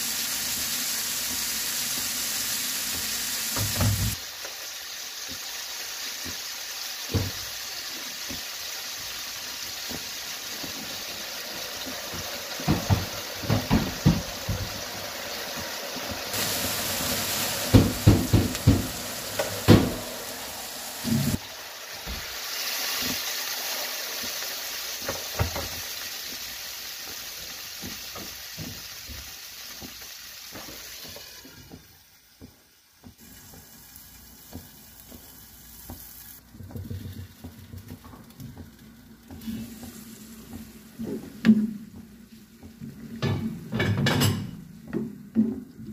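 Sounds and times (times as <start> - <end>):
vegetables sizzling in oil: 0.0 - 45.9
utensil knocking on pan: 12.1 - 14.9, 17.7 - 20.2.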